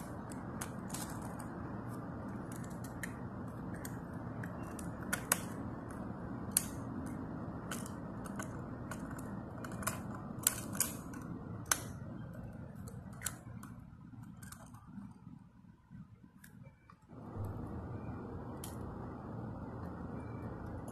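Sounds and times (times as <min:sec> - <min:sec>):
plastic toy clicks and taps: 0:02.4 - 0:05.8, 0:06.4 - 0:12.0
low background rumble: 0:17.1 - 0:20.9.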